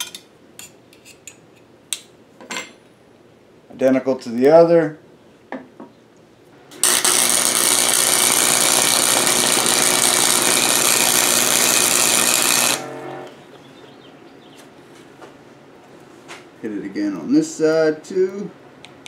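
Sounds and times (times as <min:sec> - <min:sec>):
welding arc crackling: 0:06.7 - 0:13.3
short hum: 0:06.8 - 0:13.6.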